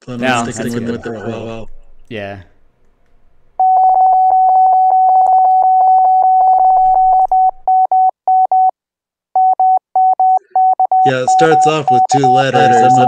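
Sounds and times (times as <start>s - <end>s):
morse code beeps: 3.6s - 8.7s, 9.4s - 13.0s.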